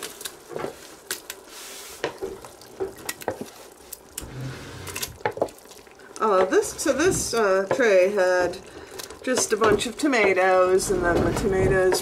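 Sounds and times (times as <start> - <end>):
food sizzling in a pot: 0.7 - 10.9
utensil scraping a pot: 4.2 - 5.3.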